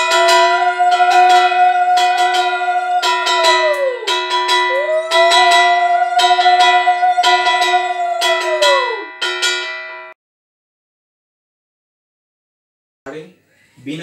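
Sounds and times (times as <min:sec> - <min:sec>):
conch shell blasts: 0:00.0 - 0:10.1
brass hand bell ringing: 0:00.0 - 0:10.2.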